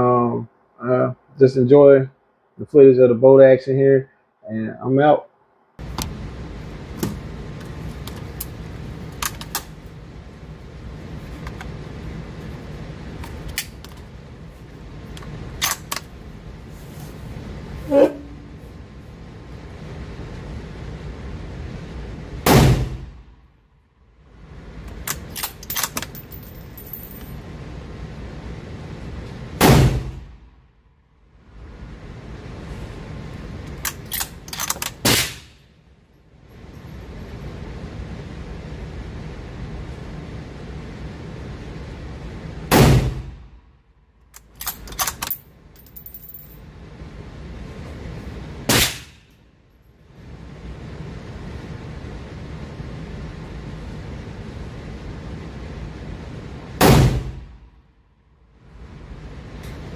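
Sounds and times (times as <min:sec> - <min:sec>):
rifle shots: 0:35.0 - 0:35.6, 0:48.7 - 0:49.2
rifle shots echoing indoors: 0:48.7 - 0:49.2.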